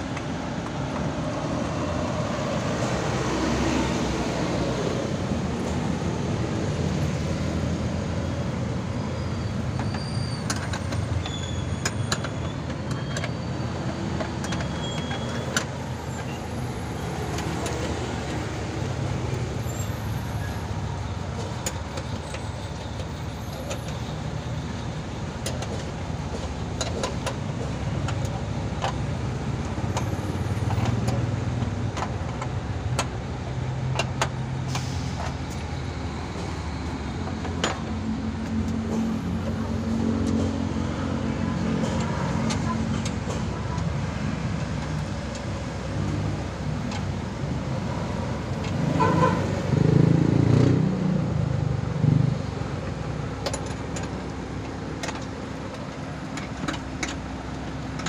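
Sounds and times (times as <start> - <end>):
road traffic rumble: 0.0 - 58.0
clicks and light knocks: 53.4 - 58.0.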